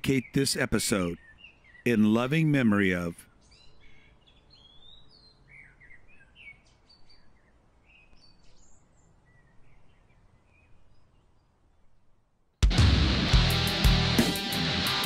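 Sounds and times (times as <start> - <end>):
faint birdsong: 0.0 - 12.7
outdoor background noise: 0.0 - 12.7.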